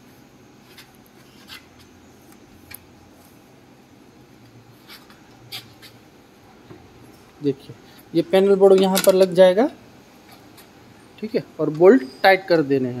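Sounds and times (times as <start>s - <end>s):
light metal clicks and taps: 8.7s - 9.3s.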